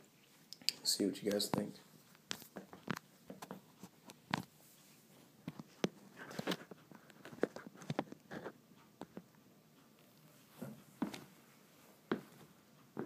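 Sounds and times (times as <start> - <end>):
footsteps on floor: 10.5 - 11.4, 12.1 - 13.0.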